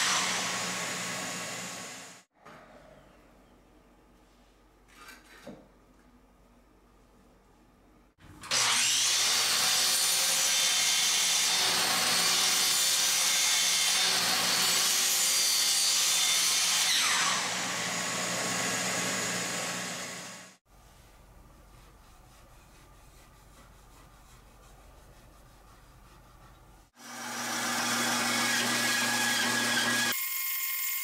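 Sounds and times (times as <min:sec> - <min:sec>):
miter saw cutting wood: 0:00.0 - 0:02.2, 0:08.4 - 0:20.6, 0:27.0 - 0:31.0.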